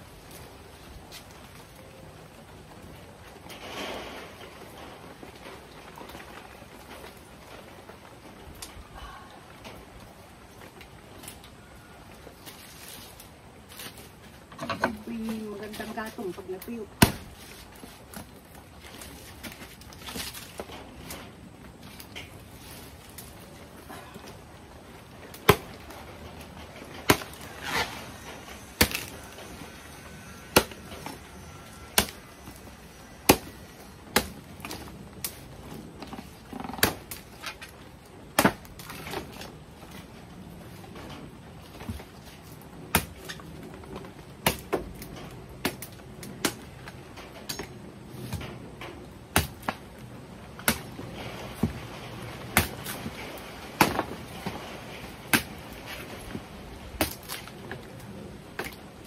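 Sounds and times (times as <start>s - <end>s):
machete chopping wood: 17.0s - 17.5s, 25.4s - 25.8s, 27.0s - 28.0s, 28.6s - 29.4s, 30.3s - 31.2s, 31.9s - 32.6s, 33.2s - 35.4s, 36.8s - 37.6s, 38.4s - 39.4s, 42.9s - 43.4s, 44.4s - 44.8s, 49.3s - 49.8s, 50.6s - 50.9s, 52.5s - 53.0s, 53.8s - 54.2s, 55.3s - 55.6s, 57.0s - 57.5s.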